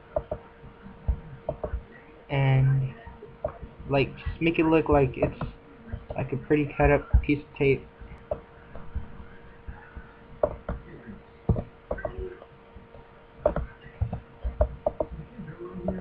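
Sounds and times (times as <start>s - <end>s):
faint electrical hum: 0.0s - 16.0s
computer mouse clicks: 1.5s - 1.8s, 11.5s - 12.2s
keyboard key presses: 1.5s - 1.8s, 10.4s - 10.8s, 13.4s - 15.2s.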